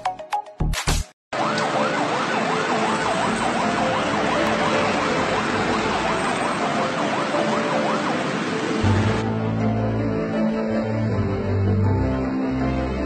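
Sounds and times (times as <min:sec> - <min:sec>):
ambulance siren yelping: 0:01.3 - 0:09.2
heavy traffic rushing: 0:01.4 - 0:13.0.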